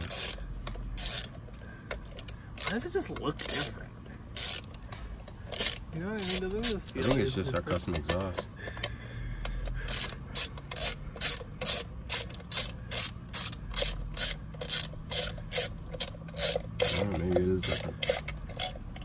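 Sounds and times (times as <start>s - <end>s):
ratchet wrench clicking: 0.0s - 19.0s.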